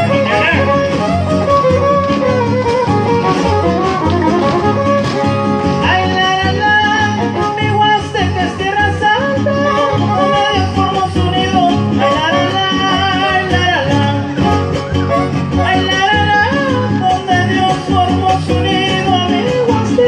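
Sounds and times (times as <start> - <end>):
guitars strumming: 0.0 - 20.0
violin melody: 0.0 - 20.0.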